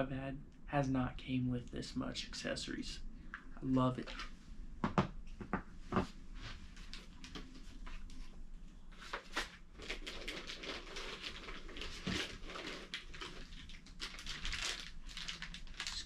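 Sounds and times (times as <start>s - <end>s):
packaging rustling and crinkling: 6.7s - 16.0s.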